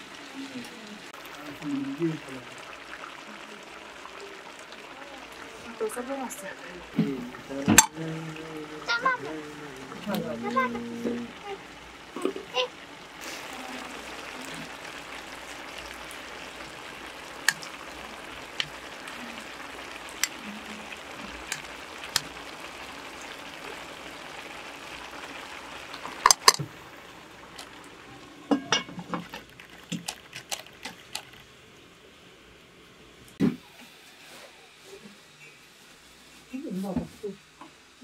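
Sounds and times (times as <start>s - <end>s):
rice sizzling in a pot: 0.0s - 38.0s
metal skimmer clinking on pot: 26.2s - 26.6s, 28.5s - 29.4s.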